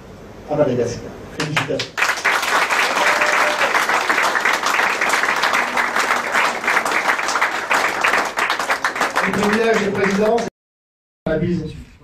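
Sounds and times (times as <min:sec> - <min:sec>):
crowd applauding: 0:01.4 - 0:10.5.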